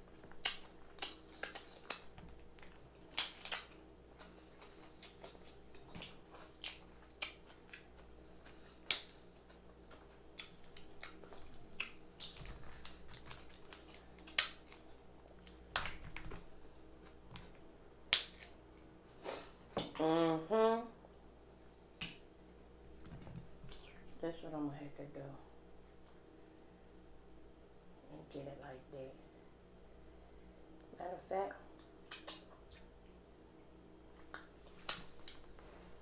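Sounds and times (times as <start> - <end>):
wet mouth chewing: 0.1 - 16.0, 31.8 - 32.9
crab shells cracking: 0.1 - 18.6.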